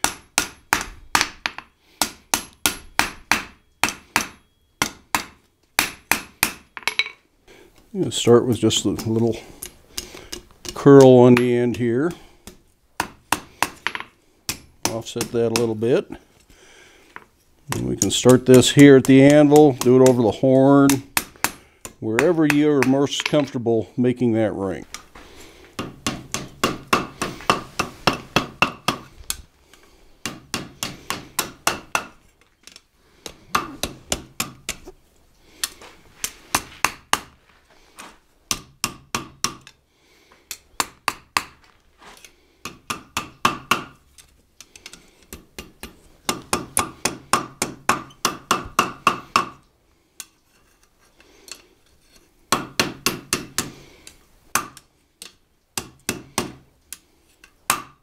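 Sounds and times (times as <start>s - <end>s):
hammer striking iron on anvil: 0.0s - 7.2s, 25.8s - 29.0s, 30.2s - 32.2s, 42.6s - 44.0s, 45.3s - 49.6s, 52.5s - 53.7s, 55.8s - 56.6s.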